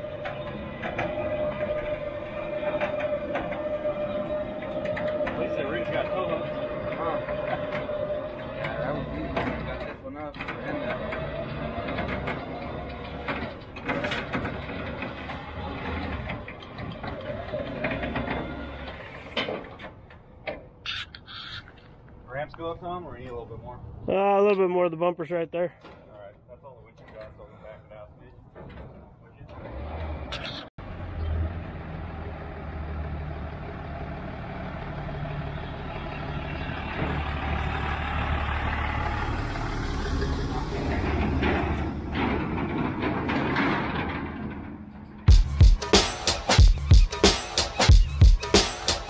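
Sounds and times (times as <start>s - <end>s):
diesel truck engine running: 0.0s - 19.2s, 29.5s - 48.7s
electric winch motor whine: 0.0s - 19.3s.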